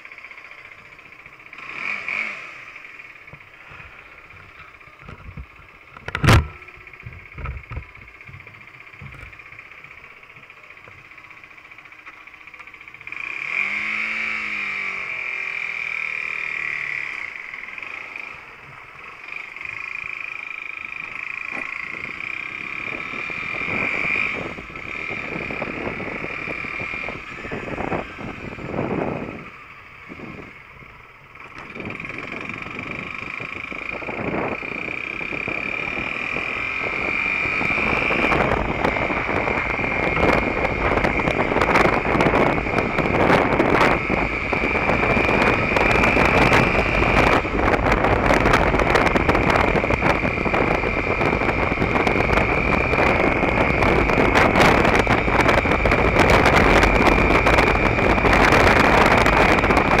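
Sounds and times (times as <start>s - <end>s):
motorcycle engine accelerating: 0.0s - 60.0s
wind on microphone: 21.8s - 31.0s, 31.6s - 60.0s.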